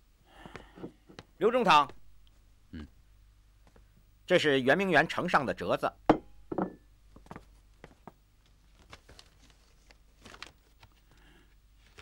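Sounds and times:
paper document rustling: 7.1 - 12.0.

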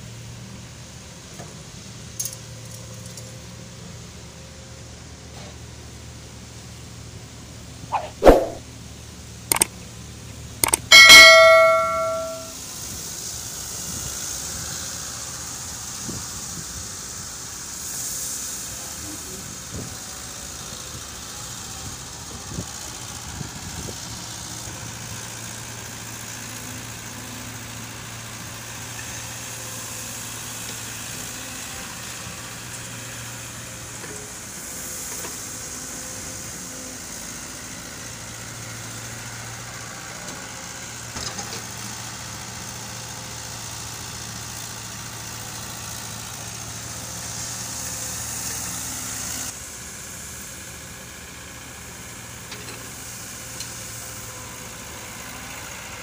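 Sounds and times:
bell notification chime: 10.9 - 12.5.

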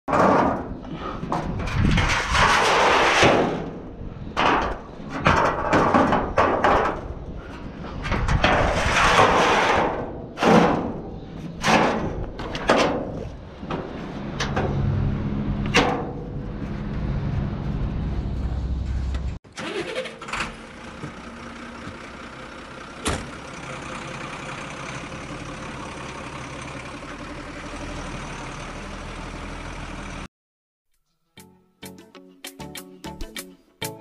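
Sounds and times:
metal clanks and knocks: 0.1 - 15.0, 15.6 - 16.6
metal ramps scraping: 0.1 - 20.6.

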